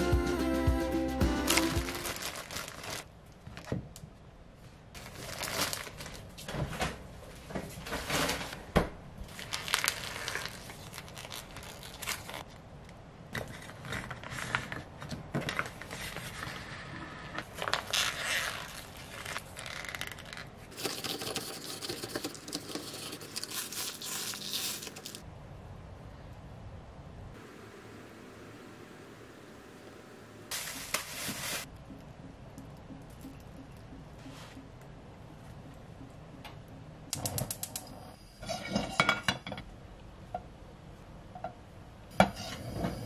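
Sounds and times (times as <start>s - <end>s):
plastic bag rustling: 1.4s - 3.8s, 5.0s - 8.6s, 9.3s - 12.5s, 17.4s - 25.2s, 30.5s - 31.7s
plastic pouch crinkling: 1.5s - 3.7s, 5.0s - 6.4s, 9.3s - 12.5s, 17.4s - 25.2s.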